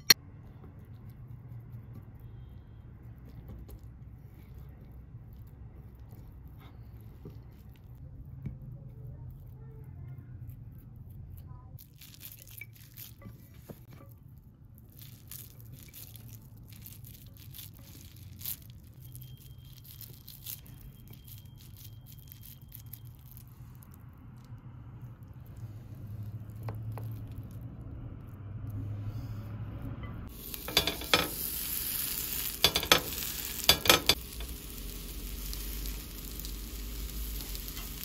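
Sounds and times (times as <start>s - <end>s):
hands squishing wet mixture: 0.1s - 28.9s.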